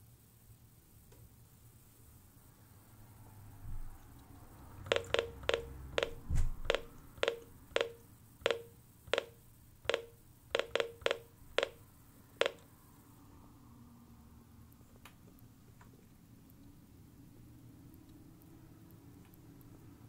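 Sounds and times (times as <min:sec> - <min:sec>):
radio key beeps: 0:04.9 - 0:11.8.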